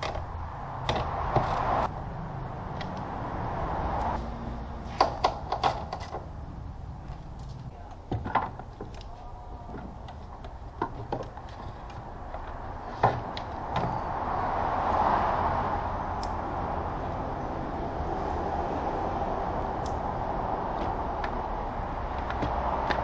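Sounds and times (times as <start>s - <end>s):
plastic panel clicks and knocks: 5.0s - 6.3s.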